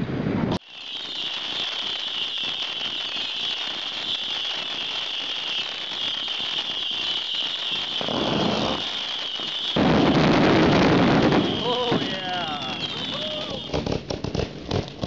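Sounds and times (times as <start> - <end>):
fireworks fountain hissing and crackling: 0.0 - 15.0.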